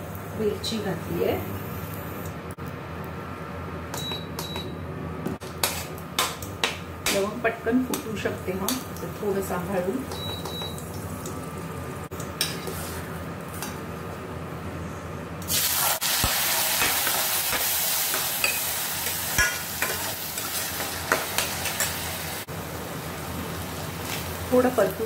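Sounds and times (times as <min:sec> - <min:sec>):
spatula scraping a pan: 0:05.6 - 0:06.0
loud sizzle of rice: 0:15.4 - 0:25.0
spices frying in oil: 0:15.5 - 0:25.0.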